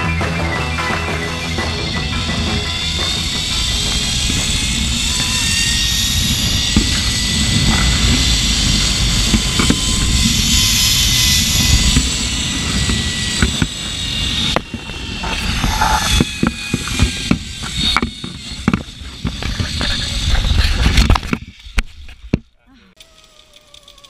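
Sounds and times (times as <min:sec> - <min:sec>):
zipline pulley whine: 0:00.0 - 0:24.0
wind buffeting microphone: 0:01.4 - 0:22.4
sharp knocks: 0:06.6 - 0:13.8.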